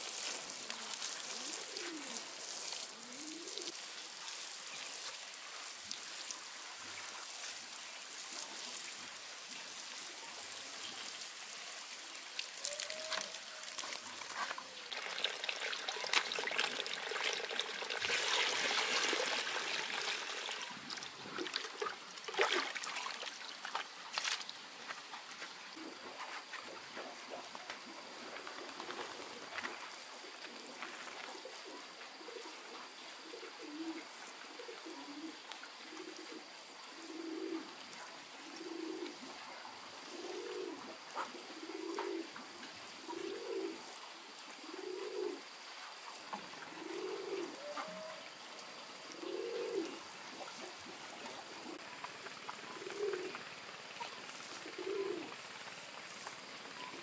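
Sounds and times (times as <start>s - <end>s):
dove cooing: 0.5s - 3.8s, 12.6s - 20.8s, 25.8s - 26.1s, 30.4s - 37.8s, 38.4s - 39.4s, 40.0s - 43.9s, 44.6s - 45.6s, 46.6s - 48.4s, 49.0s - 57.0s.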